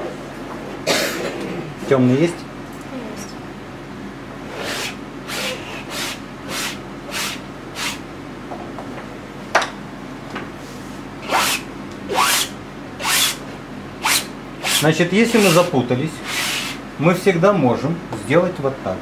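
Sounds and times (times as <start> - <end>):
painting tool scraping canvas: 14.0 - 15.7.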